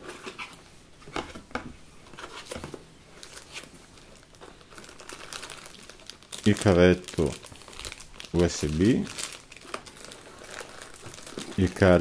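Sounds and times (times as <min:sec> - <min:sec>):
plastic bags crinkling: 0:03.2 - 0:12.0.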